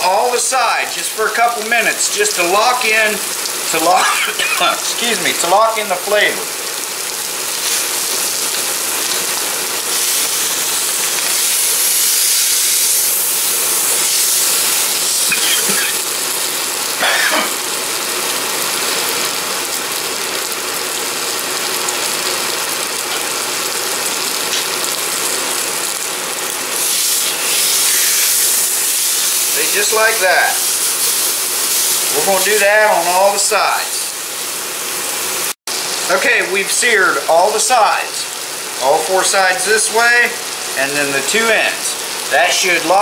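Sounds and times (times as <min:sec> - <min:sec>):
meat sizzling in hot oil: 0:00.0 - 0:43.0.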